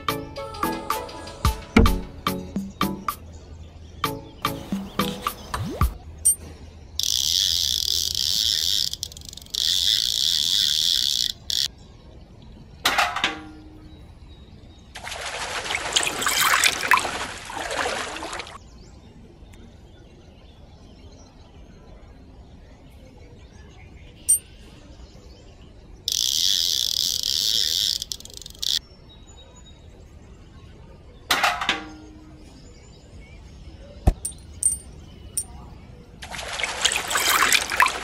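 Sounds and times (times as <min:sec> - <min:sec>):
water pouring and splashing: 0:15.0 - 0:18.6, 0:36.2 - 0:38.0.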